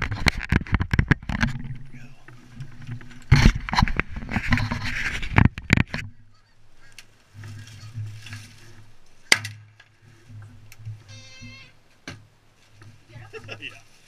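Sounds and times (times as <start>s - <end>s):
geese honking and clucking: 2.0s - 11.9s.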